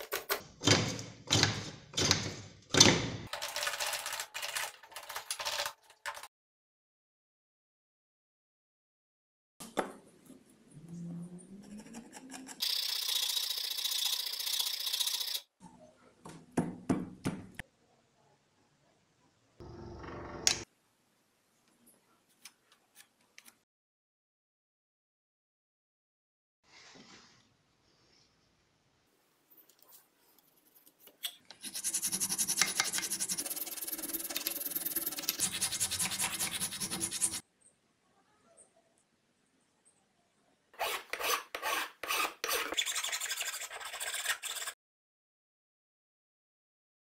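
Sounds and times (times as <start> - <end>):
wood rasp filing: 31.6 - 37.4, 40.8 - 44.8
hacksaw cutting wood: 40.8 - 42.9.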